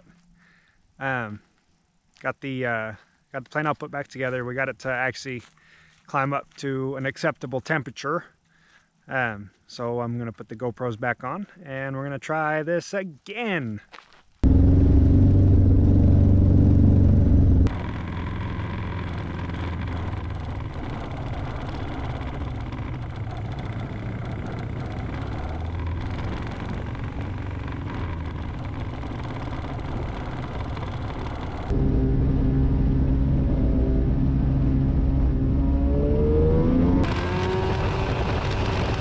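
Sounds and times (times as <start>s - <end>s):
snowmobile engine droning: 14.4s - 39.0s.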